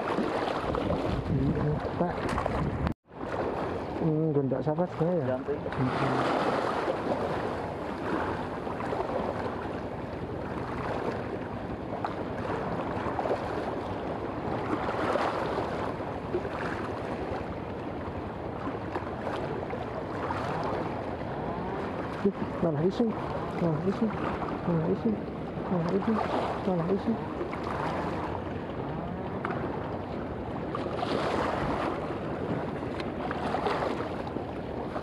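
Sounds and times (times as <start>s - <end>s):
seawater splashing against rocks: 0.0s - 3.8s, 18.6s - 35.0s.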